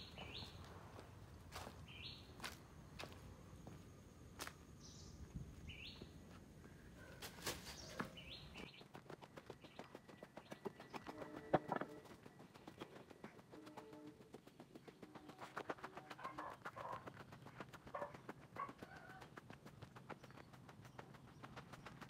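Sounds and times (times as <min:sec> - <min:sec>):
bird chirps: 0:00.0 - 0:00.7, 0:01.6 - 0:02.5, 0:04.8 - 0:06.2, 0:07.0 - 0:19.2.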